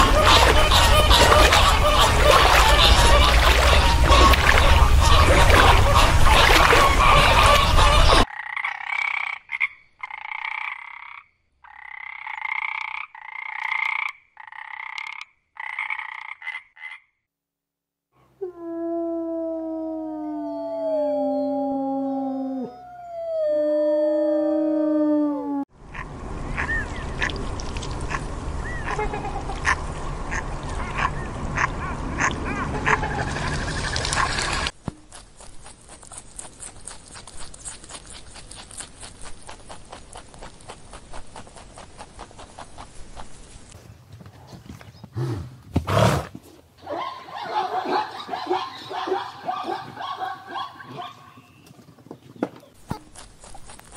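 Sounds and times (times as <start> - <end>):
wolves howling: 18.4 - 25.7.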